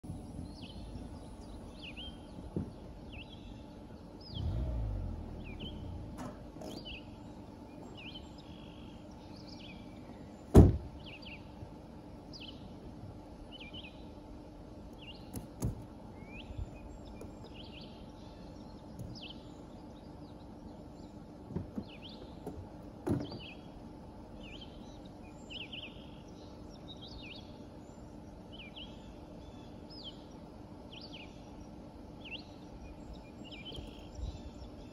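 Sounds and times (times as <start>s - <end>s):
low rumble: 0.0s - 7.4s
small birds chirping: 0.0s - 34.9s
sharp loud thump: 10.5s - 10.9s.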